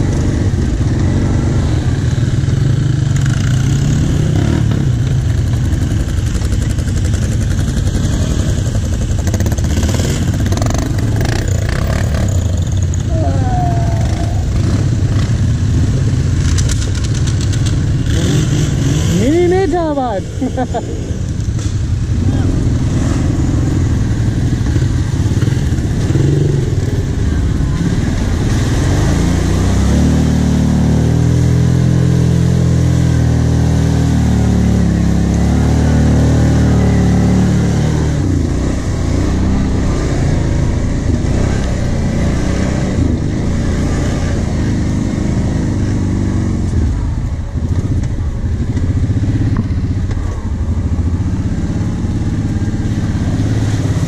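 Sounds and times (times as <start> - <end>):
quad bike engine running: 0.0 - 54.0.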